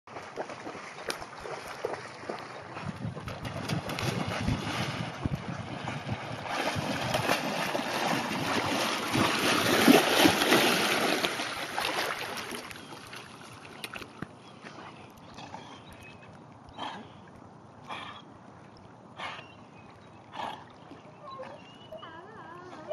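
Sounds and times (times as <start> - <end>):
dog splashing through water: 0.1 - 14.2
quiet water sounds: 0.1 - 22.9.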